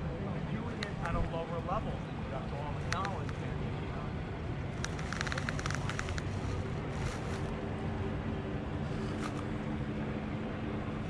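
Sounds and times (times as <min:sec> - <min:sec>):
faint steady drone: 0:00.0 - 0:11.0
wind and surf rumble: 0:00.0 - 0:11.0
small clicks: 0:02.9 - 0:03.4, 0:04.8 - 0:07.5.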